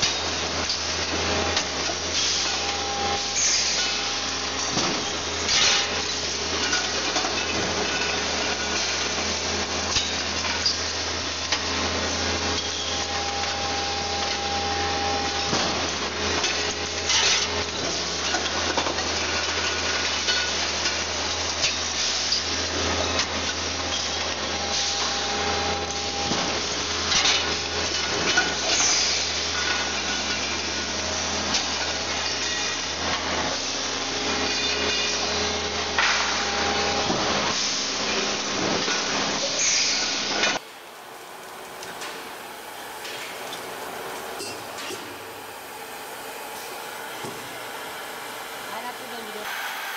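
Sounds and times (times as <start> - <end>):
factory machinery hum: 0.0 - 49.9
machine whine: 0.0 - 49.9.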